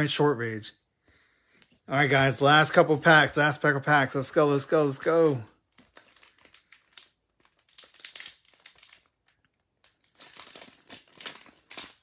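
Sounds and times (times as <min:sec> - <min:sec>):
foil wrapper crinkling: 0:04.8 - 0:12.0.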